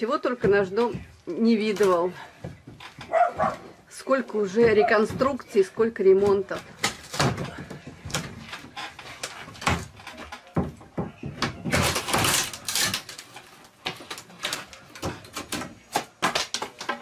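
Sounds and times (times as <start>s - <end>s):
wooden boards knocking and cracking: 4.5s - 17.0s.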